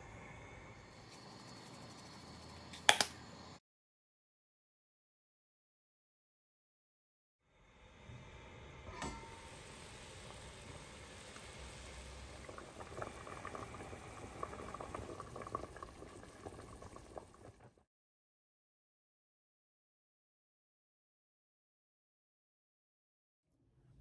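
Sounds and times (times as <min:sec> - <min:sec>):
sharp click: 0:02.7 - 0:03.2
soup boiling and bubbling: 0:09.3 - 0:17.8.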